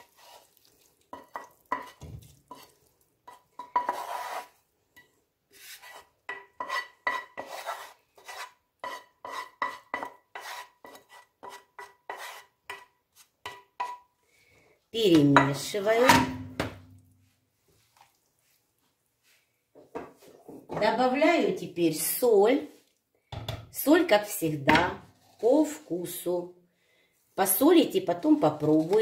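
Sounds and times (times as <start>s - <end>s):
wooden spoon scraping a pan: 0.0s - 14.1s, 19.8s - 21.3s, 24.2s - 26.3s, 27.4s - 29.0s.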